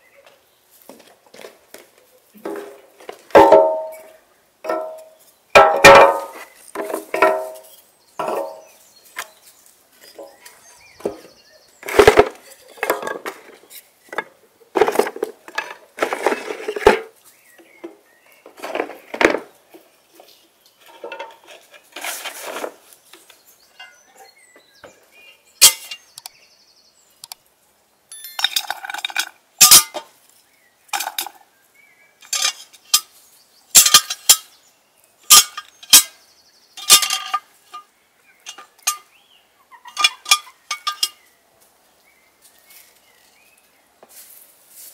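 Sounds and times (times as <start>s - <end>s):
wooden blocks clattering: 2.4s - 4.0s, 4.7s - 7.6s, 11.8s - 17.1s
metal pot clinking: 28.1s - 30.0s, 39.9s - 41.2s.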